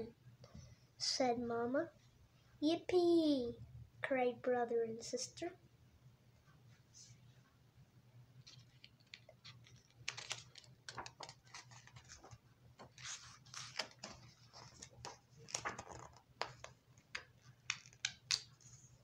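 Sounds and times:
book page turning: 8.4 - 18.9.

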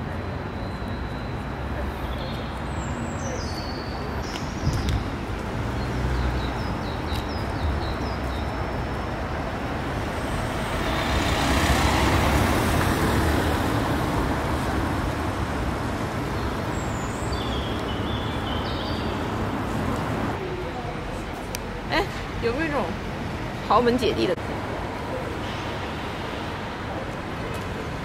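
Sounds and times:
traffic rumble: 0.0 - 28.0
van driving past: 8.6 - 17.2.

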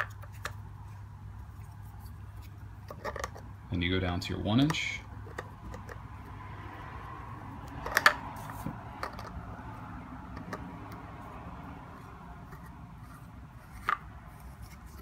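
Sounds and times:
plastic pipe fittings rubbing: 0.0 - 3.5, 4.5 - 6.2, 7.6 - 9.5, 10.2 - 15.0
steady background hum: 0.0 - 15.0.

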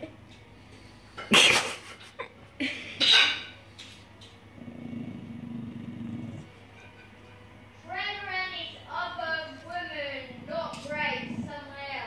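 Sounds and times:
dog snarling: 4.5 - 6.6, 9.9 - 12.0.

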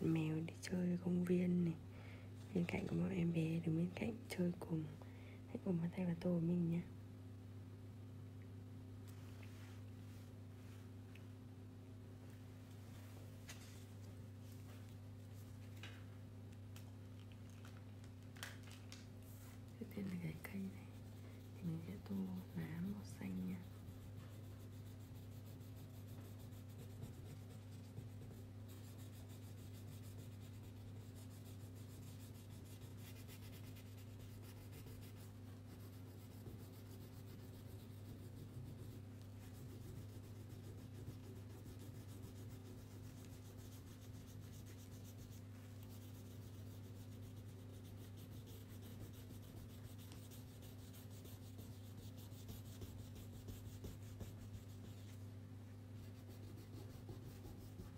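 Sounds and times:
low electrical hum: 0.0 - 57.9
crayon scribbling on paper: 21.9 - 55.2, 56.0 - 57.9.

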